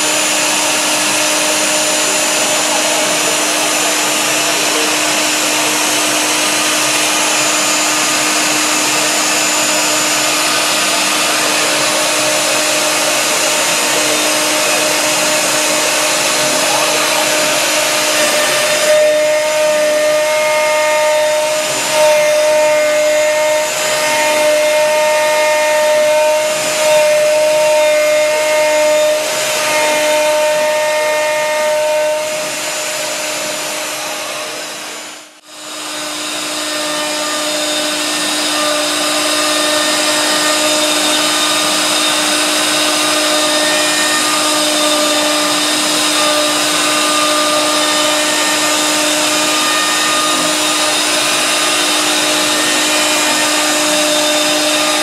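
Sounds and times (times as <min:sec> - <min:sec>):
router spindle whining cutting wood: 0:00.0 - 0:55.0.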